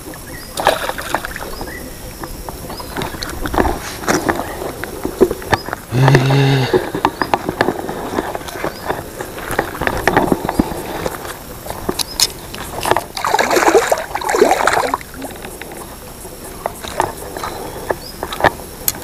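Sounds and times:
water splashing: 0:00.0 - 0:19.0.

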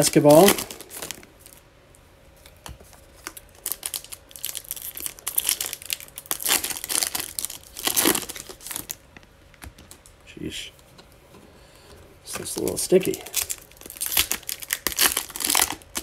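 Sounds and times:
foil pack tearing and crinkling: 0:00.0 - 0:01.6, 0:03.2 - 0:09.0, 0:12.3 - 0:16.0.

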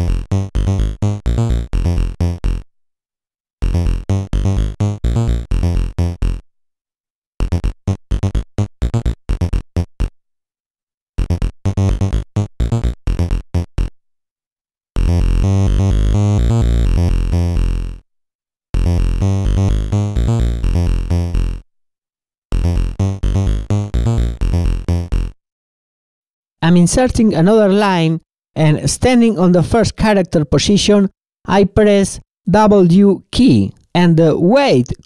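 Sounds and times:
rapid synth notes: 0:22.5 - 0:25.4.

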